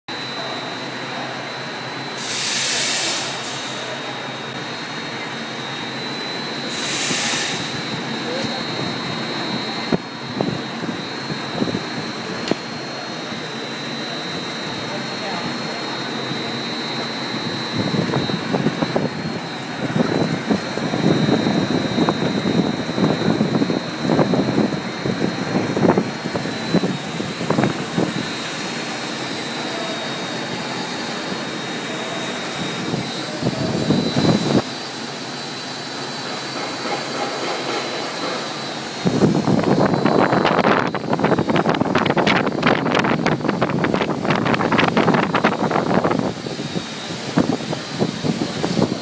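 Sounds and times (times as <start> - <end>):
machine hum and whine: 0.1 - 49.0
rushing hiss: 2.2 - 3.8, 6.7 - 7.8.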